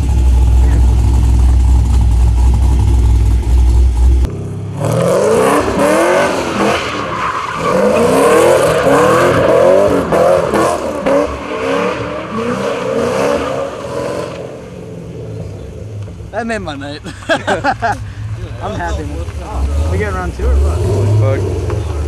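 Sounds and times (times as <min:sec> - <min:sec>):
deep low rumble: 0:00.0 - 0:04.4
car engine revving: 0:00.0 - 0:16.3, 0:17.7 - 0:22.0.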